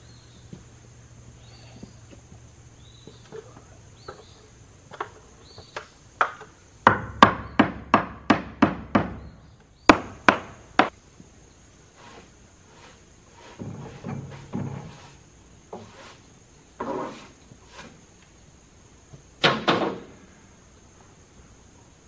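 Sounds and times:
hammer striking nails into wood: 6.2s - 9.2s, 9.9s - 10.9s.

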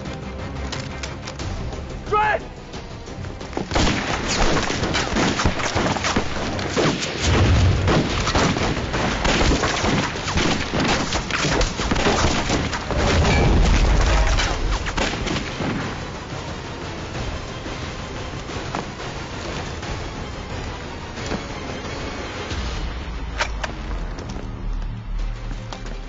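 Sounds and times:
rapid gunshots: 3.6s - 16.7s
deep rumble: 12.8s - 15.3s.

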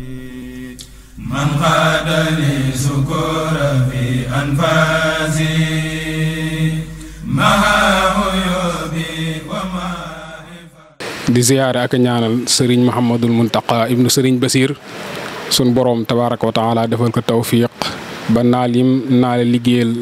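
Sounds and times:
man singing religious chant: 0.0s - 11.0s.

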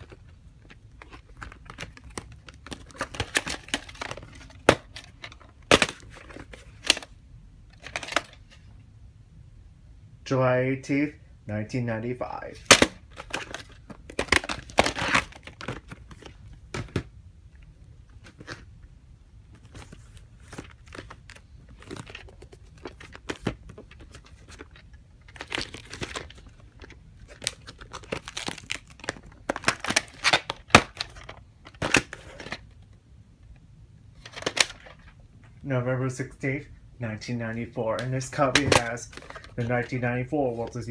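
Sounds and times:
plastic cases clicking: 0.0s - 7.1s, 12.7s - 17.1s, 38.0s - 39.9s
plastic rustling and scraping: 0.0s - 7.1s, 12.7s - 17.1s, 19.5s - 32.8s, 37.8s - 40.9s.

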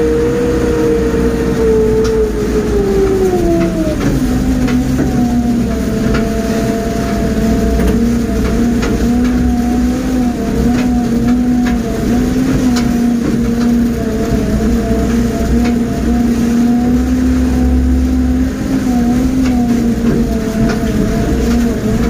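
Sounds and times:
diesel engine running: 0.0s - 22.0s
scattered clicks and knocks: 3.1s - 16.2s, 19.3s - 22.0s.

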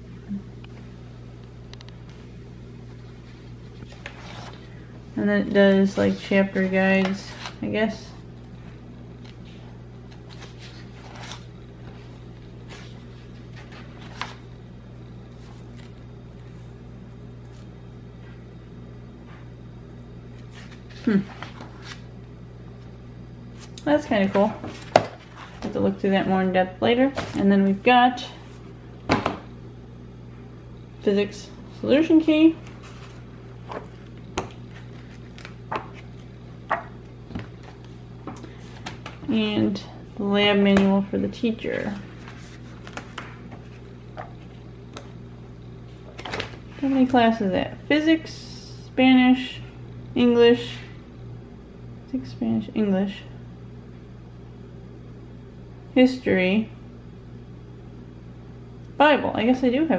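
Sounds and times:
book pages turning: 3.2s - 4.8s, 5.7s - 7.7s, 8.6s - 14.6s, 15.2s - 16.7s, 20.3s - 22.1s, 23.5s - 25.8s, 32.6s - 39.3s, 41.7s - 45.2s, 46.0s - 47.2s.

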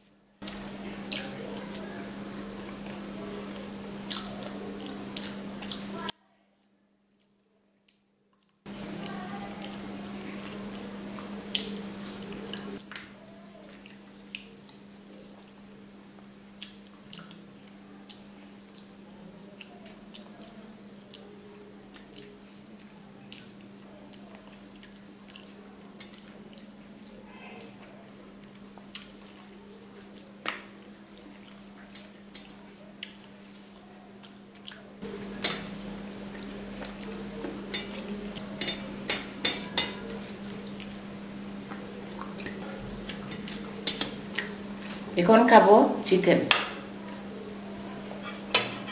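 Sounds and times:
wet chewing and lip smacks: 4.1s - 5.9s, 11.2s - 12.8s, 13.7s - 15.4s, 16.6s - 27.2s, 28.4s - 38.7s, 39.9s - 44.6s
steady low hum: 8.7s - 48.9s.

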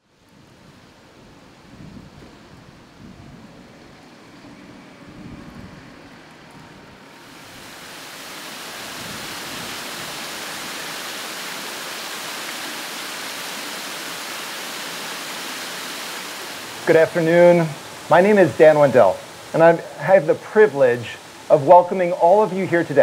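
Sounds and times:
waterfall over rocks: 7.1s - 23.0s.

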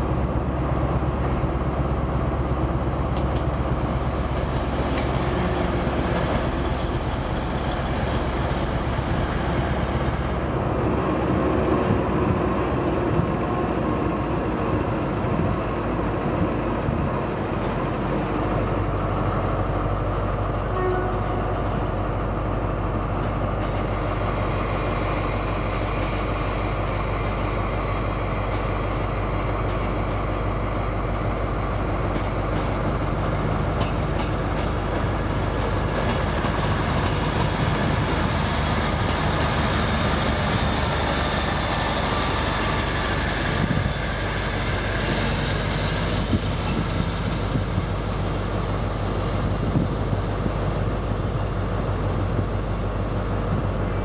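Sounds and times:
diesel trains running: 0.0s - 54.0s.

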